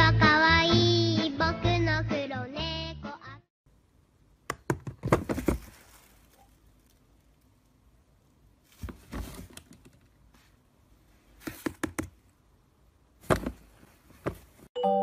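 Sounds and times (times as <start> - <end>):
plastic trash can lid knocking: 4.5 - 5.7.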